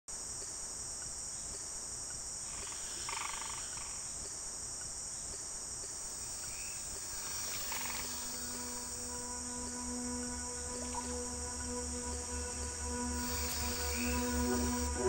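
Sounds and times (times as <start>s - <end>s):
insect chorus: 0.1s - 15.0s
rapid pulsed animal trill: 6.1s - 9.5s, 12.4s - 15.0s.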